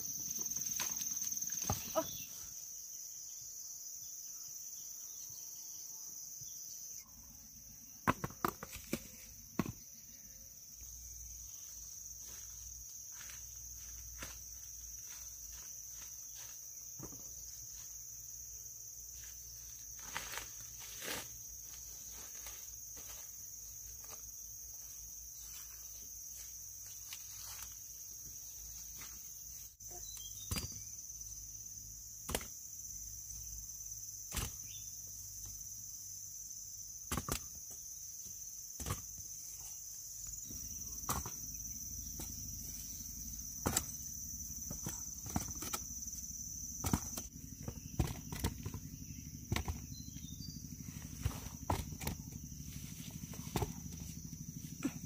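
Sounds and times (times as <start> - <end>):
insects shrilling: 11.4 - 55.0.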